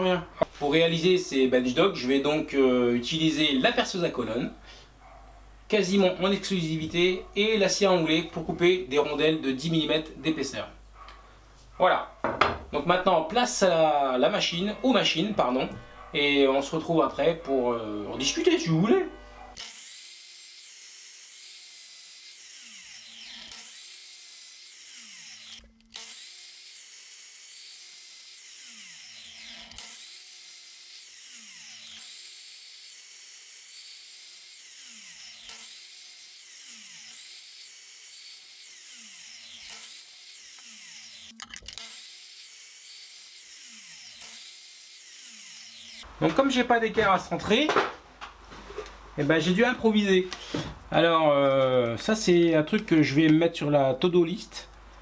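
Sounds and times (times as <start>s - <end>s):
miter saw cutting plastic: 17.1s - 46.1s
saw blade spinning down: 18.4s - 46.1s.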